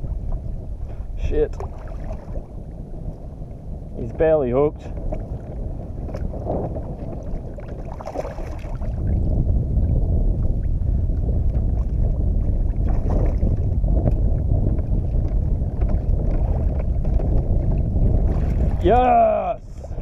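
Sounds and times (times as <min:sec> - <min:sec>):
wind buffeting microphone: 0:00.0 - 0:20.0
fish splashing in water: 0:07.7 - 0:09.0.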